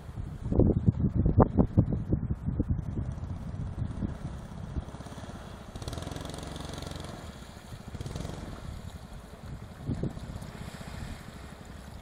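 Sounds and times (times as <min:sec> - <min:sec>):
small boat engine running: 0:03.0 - 0:12.0.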